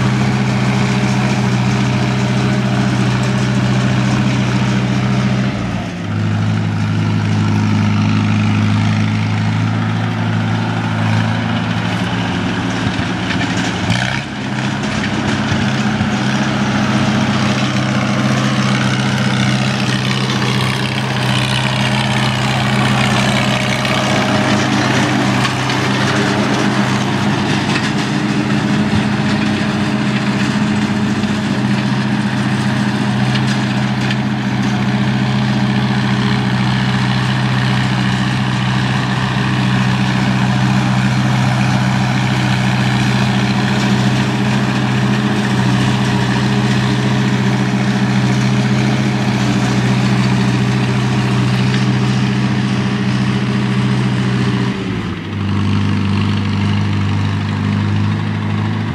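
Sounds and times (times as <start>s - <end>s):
engine running steadily: 0.0s - 58.9s.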